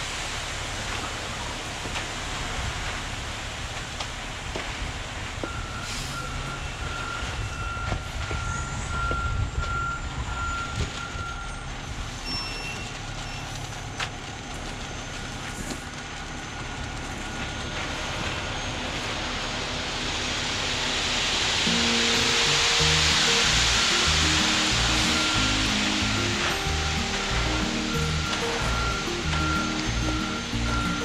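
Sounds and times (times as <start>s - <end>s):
diesel engine rumbling: 0.0s - 31.0s
reversing alarm beeping: 5.4s - 13.8s, 21.6s - 31.0s.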